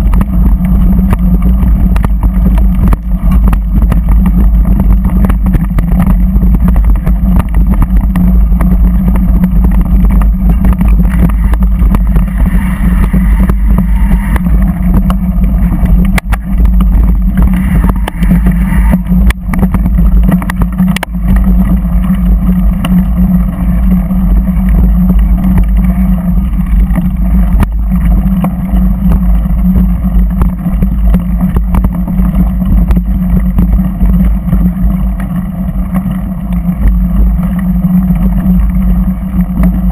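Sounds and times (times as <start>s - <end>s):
vehicle engine running: 0.0s - 39.9s.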